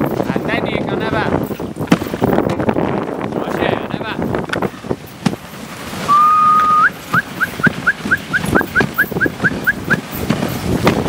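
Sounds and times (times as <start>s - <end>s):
dog sled knocks and rattles: 0.0s - 11.0s
person whistling: 6.1s - 10.0s.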